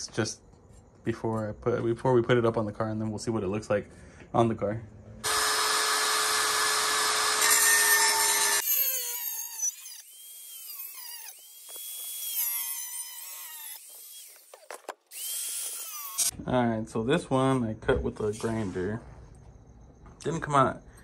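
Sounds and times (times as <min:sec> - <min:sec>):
angle grinder cutting metal: 0:05.2 - 0:16.3
angle grinder whine: 0:05.2 - 0:16.3.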